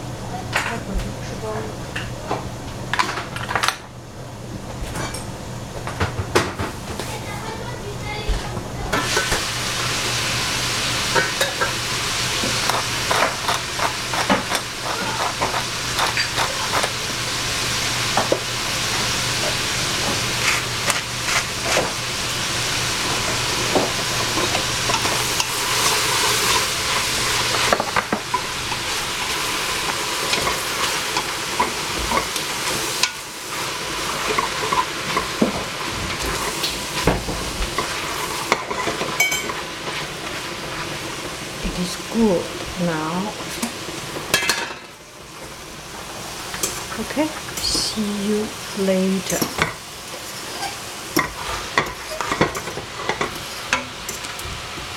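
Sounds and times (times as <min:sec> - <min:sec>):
cabbage and tofu sizzling: 0:06.6 - 0:54.9.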